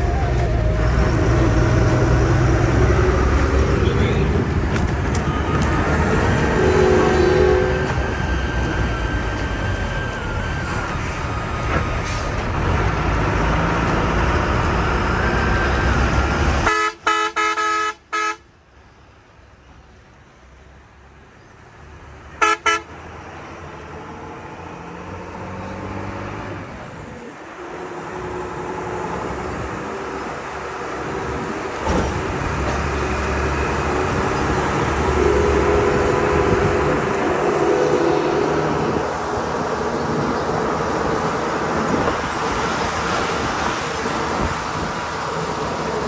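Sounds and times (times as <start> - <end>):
diesel truck engine revving: 0.0 - 16.7, 22.9 - 46.0
road and wind noise: 0.0 - 46.0
truck horn toots: 6.4 - 8.0, 16.6 - 18.4, 22.4 - 22.9, 35.0 - 39.0.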